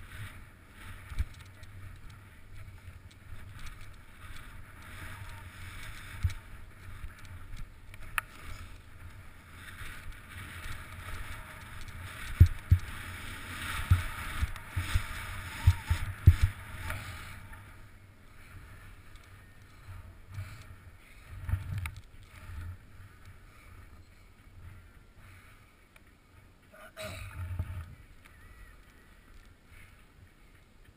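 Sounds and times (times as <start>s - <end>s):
wind on microphone: 0.0s - 17.9s.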